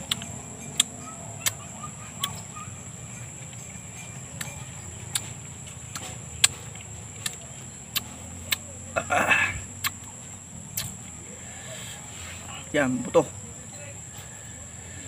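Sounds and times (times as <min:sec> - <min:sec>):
wet lip smacks and sucking: 0:07.2 - 0:08.6, 0:10.7 - 0:11.0.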